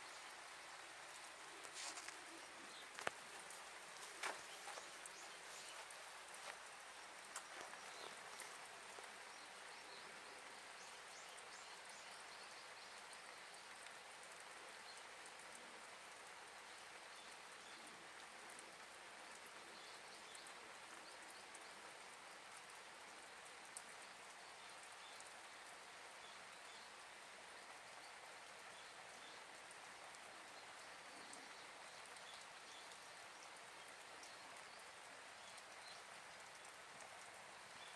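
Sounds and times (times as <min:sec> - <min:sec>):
steady background hiss: 0:00.0 - 0:37.9
fire crackling: 0:01.0 - 0:09.0.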